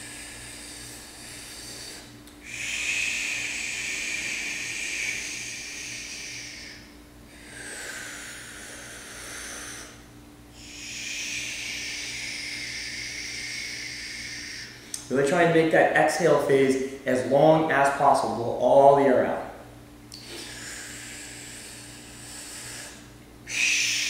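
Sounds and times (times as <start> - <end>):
man breathing deeply: 0.0 - 15.1, 20.1 - 24.0
faint low hum: 0.0 - 24.0.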